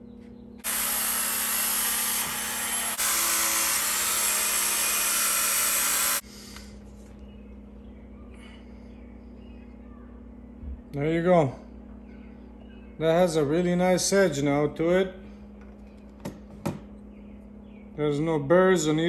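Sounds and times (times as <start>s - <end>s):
belt sander grinding steel: 0.6s - 6.2s.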